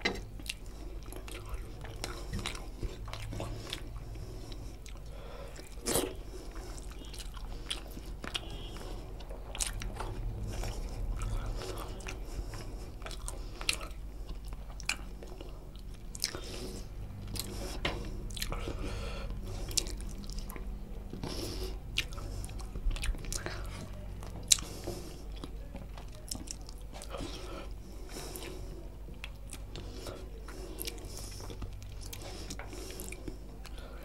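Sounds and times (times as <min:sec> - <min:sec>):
person chewing food: 0:00.0 - 0:34.0
steady low hum: 0:00.0 - 0:34.0.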